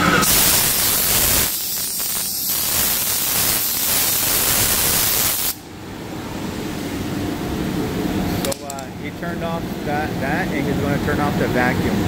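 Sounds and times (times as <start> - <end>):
machinery hiss of rushing air: 0.0 - 5.6
machinery hum: 5.5 - 12.0.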